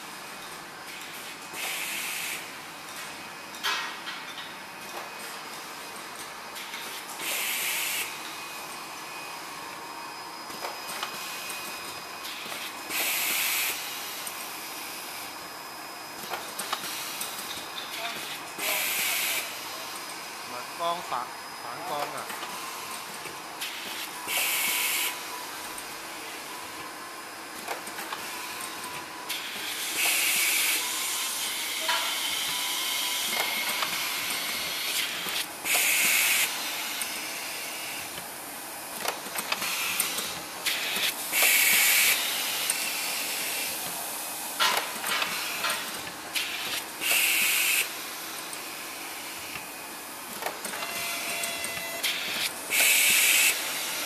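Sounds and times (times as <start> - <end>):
compressed air hiss: 7.2 - 8.1, 12.9 - 13.9, 18.6 - 19.6, 34.9 - 36.6, 40.7 - 43.8, 46.4 - 48.0, 52.1 - 54.0.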